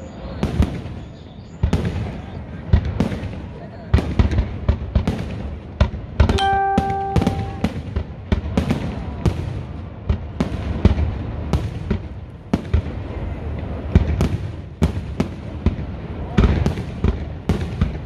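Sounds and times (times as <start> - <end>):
fireworks bursts and bangs: 0.1 - 18.0
steady pitched tone: 6.3 - 7.6.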